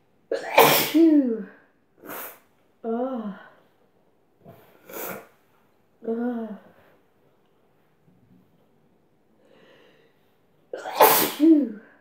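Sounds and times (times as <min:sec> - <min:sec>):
woman sneezing: 0:00.4 - 0:01.4, 0:10.8 - 0:11.8.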